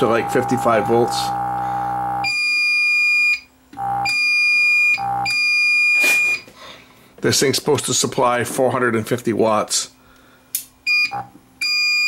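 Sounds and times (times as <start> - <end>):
alarm buzzer beeps: 0.0 - 6.5, 10.9 - 12.0
inverter hum: 0.0 - 12.0.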